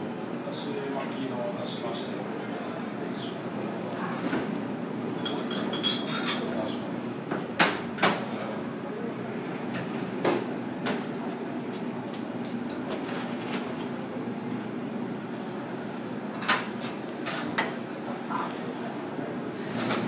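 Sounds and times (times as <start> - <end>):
low hum and murmur: 0.0 - 20.0
tableware clicks and knocks: 5.2 - 6.5.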